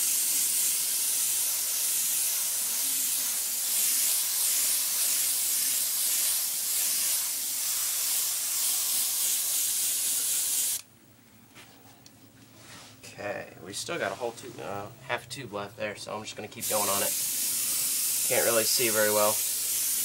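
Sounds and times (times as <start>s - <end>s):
airbrush spraying hiss: 0.0s - 10.8s, 16.6s - 20.0s.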